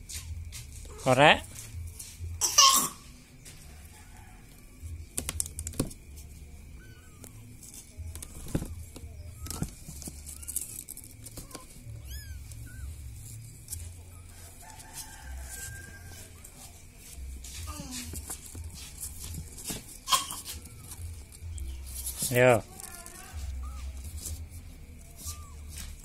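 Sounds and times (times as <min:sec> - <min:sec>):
high chirping mews: 0:06.2 - 0:14.5
cat meowing: 0:06.7 - 0:07.5, 0:11.4 - 0:12.9, 0:22.7 - 0:24.0.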